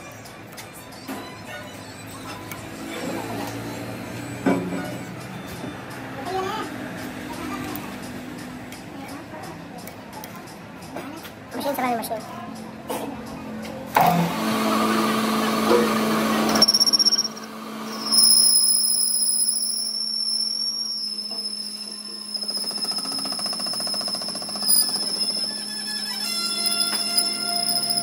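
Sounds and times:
metal lathe humming: 0:13.9 - 0:28.0
tool cutting metal: 0:14.0 - 0:28.0
high tool squeal: 0:16.4 - 0:28.0.

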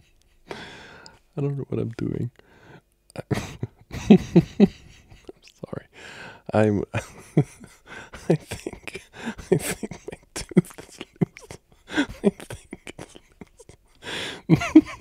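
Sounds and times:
man giggling and snorting: 0:03.1 - 0:05.5, 0:07.0 - 0:15.0.

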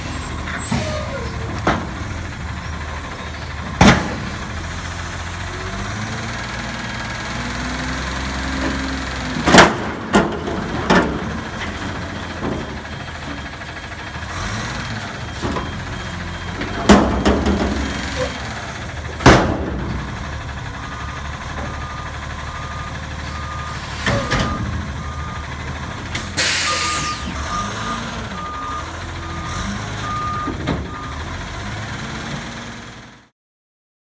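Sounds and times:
garbage truck engine running: 0:00.0 - 0:33.3
reverse alarm beeping: 0:20.8 - 0:25.6, 0:26.4 - 0:31.3
air brake hiss: 0:26.2 - 0:27.3.

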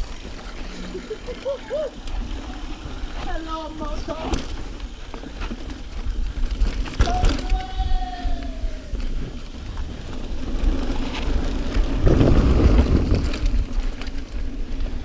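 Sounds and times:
bike tyres rumbling over dirt: 0:00.0 - 0:15.0
wind buffeting microphone: 0:04.9 - 0:15.0.

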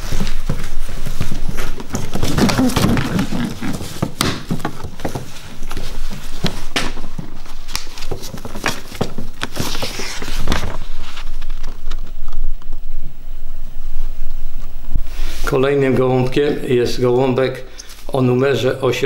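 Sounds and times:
paper rustling: 0:00.0 - 0:13.0.

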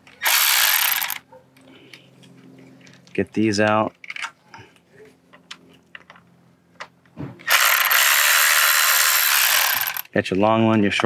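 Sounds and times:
cordless ratchet spinning: 0:00.2 - 0:01.2, 0:07.4 - 0:10.1.

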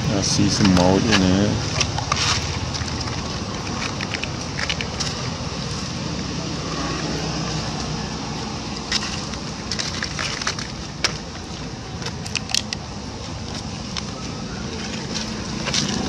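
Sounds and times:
sharp crackles and clicks: 0:00.6 - 0:05.4.

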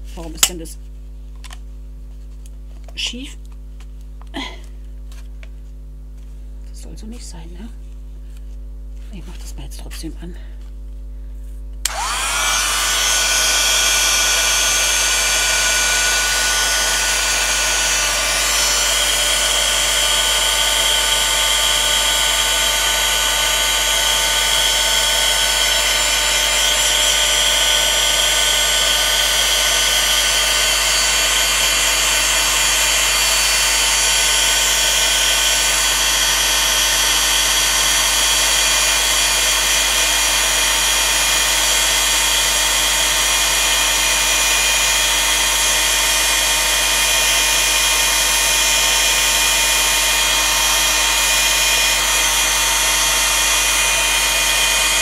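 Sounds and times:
heat gun fan whining: 0:11.4 - 0:55.0.

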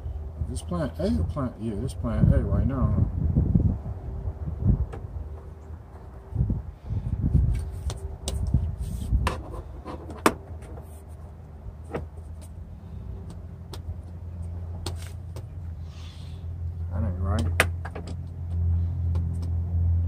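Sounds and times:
steady low rumble: 0:00.0 - 0:20.0
wiper arm clicking and knocking: 0:17.3 - 0:19.6.

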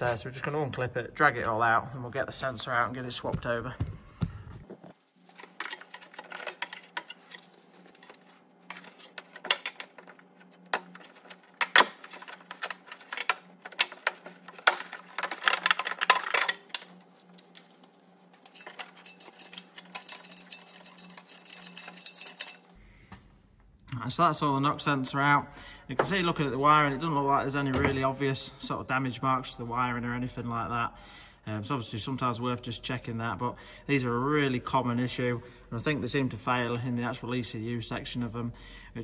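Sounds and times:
plastic clips clicking and rattling: 0:05.4 - 0:17.7.

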